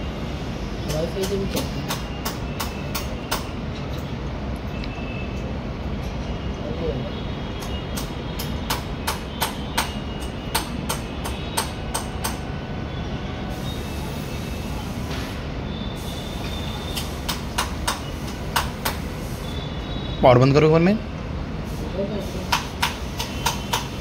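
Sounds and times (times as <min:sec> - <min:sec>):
sharp clicks: 0:22.5 - 0:24.0.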